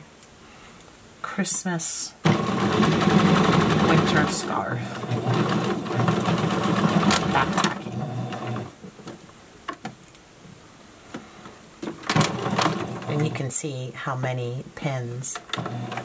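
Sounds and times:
sewing machine running: 2.2 - 8.7, 12.1 - 13.4, 15.5 - 16.0.

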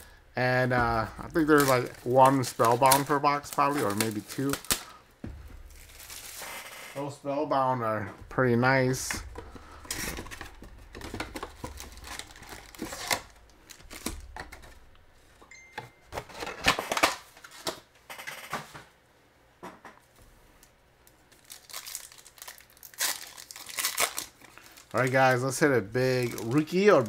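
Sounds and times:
foil packs crinkling: 0.9 - 7.0, 8.7 - 15.4, 21.3 - 27.0.

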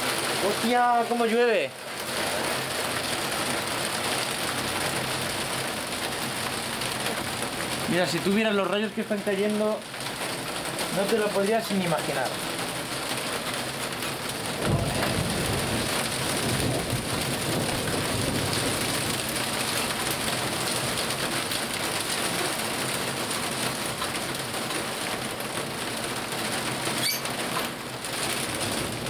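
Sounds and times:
heavy rain falling: 0.0 - 29.0
low rumble of thunder: 14.4 - 20.5, 28.3 - 29.0.

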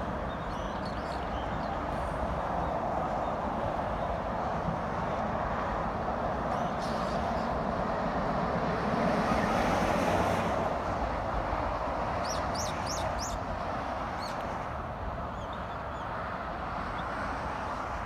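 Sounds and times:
expressway traffic hum: 0.0 - 18.0
bird chirping: 12.2 - 13.4.

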